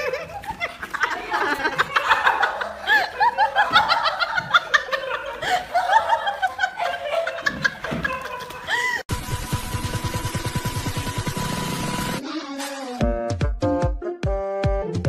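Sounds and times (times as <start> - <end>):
people laughing and giggling: 0.0 - 9.1.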